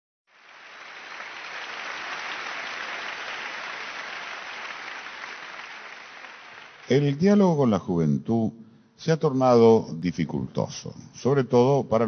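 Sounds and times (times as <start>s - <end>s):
audience applauding: 0.3s - 7.4s.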